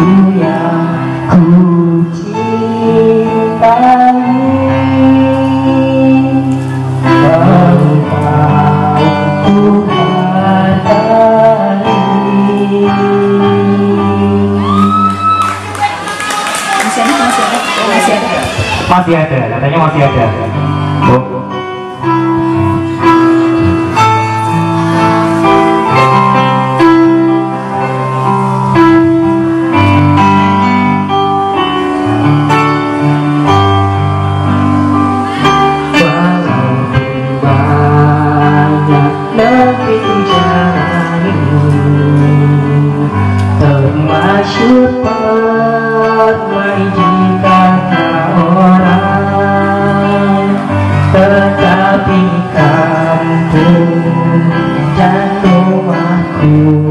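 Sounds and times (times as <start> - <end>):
young man singing: 0.0 - 15.2, 35.4 - 56.9
instrumental accompaniment with beat: 14.7 - 56.9.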